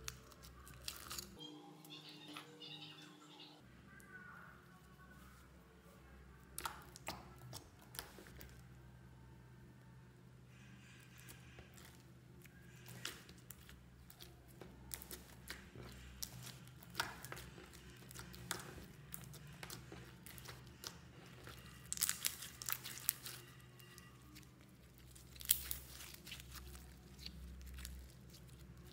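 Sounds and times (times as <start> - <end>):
slime crackling and crunching: 0.0 - 1.4, 6.5 - 8.6, 11.0 - 28.9.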